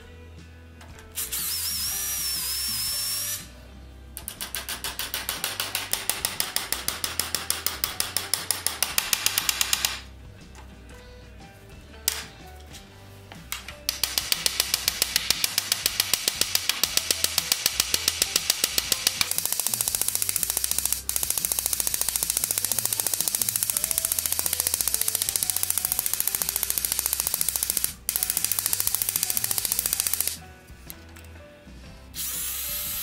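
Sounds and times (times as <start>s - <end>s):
hammer tapping on metal rivet: 4.2s - 9.9s.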